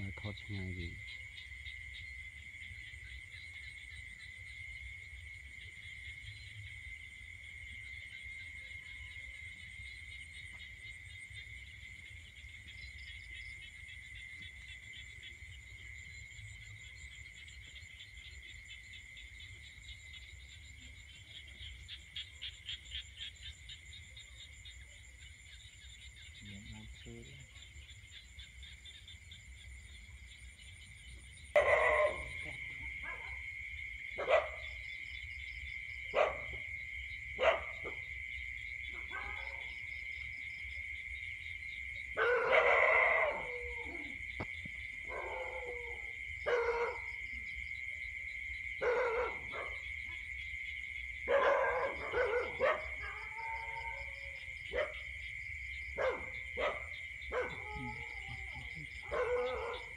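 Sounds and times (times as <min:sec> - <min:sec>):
night insects droning: 0:00.0 - 0:59.9
dog barking: 0:31.5 - 0:33.4, 0:34.2 - 0:34.8, 0:36.1 - 0:36.7, 0:37.4 - 0:38.1, 0:38.9 - 0:39.7, 0:42.2 - 0:44.2, 0:45.1 - 0:47.2, 0:48.8 - 0:50.2, 0:51.3 - 0:55.1, 0:55.9 - 0:59.9.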